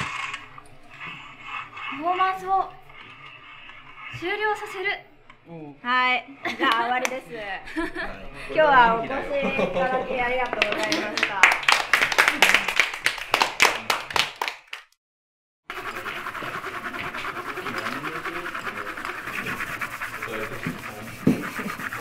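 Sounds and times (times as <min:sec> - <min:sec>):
pencils scratching on paper: 0:00.0 - 0:05.0, 0:15.7 - 0:22.0
small group applauding: 0:10.4 - 0:15.0.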